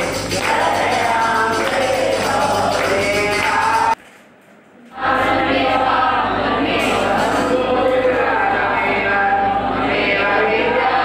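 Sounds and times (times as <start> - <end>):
devotional singing: 0.0 - 4.0, 4.9 - 11.0
instrumental accompaniment: 0.0 - 4.0.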